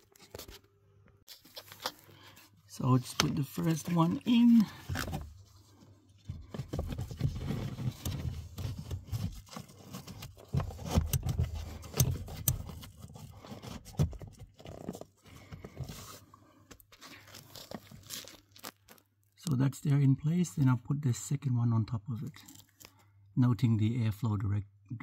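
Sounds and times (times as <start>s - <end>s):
filter scraping in plastic housing: 6.6s - 15.0s.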